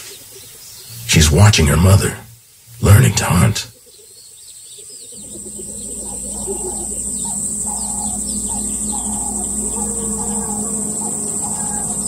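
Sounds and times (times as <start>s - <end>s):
bird chirps and calls: 3.7s - 12.0s
high insect trill: 5.2s - 12.0s
low steady hum: 5.2s - 12.0s.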